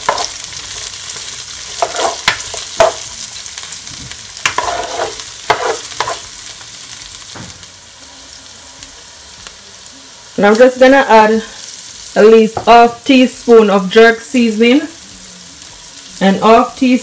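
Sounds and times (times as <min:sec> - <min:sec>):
spatula scraping pan: 0:00.0 - 0:00.6, 0:01.7 - 0:03.1, 0:04.4 - 0:06.4
vegetables sizzling in oil: 0:00.0 - 0:17.0.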